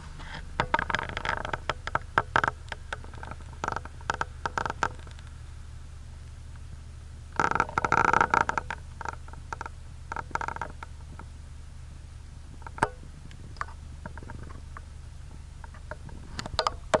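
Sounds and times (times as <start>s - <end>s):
creaking and clicking: 0.0s - 5.3s, 7.4s - 11.3s, 12.6s - 14.9s
vehicle engine idling: 0.0s - 17.0s.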